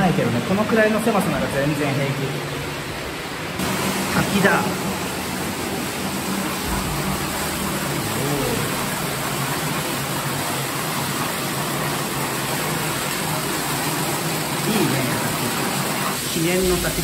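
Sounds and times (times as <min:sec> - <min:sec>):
waterfall rushing: 0:03.5 - 0:17.0.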